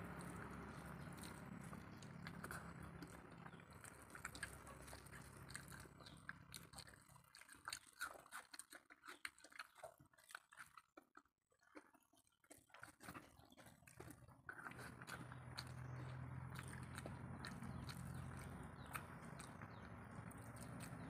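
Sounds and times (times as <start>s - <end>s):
low steady hum: 0.0s - 6.8s
fingers squishing wet rice: 0.0s - 11.0s, 11.6s - 21.0s
soft chewing: 0.0s - 21.0s.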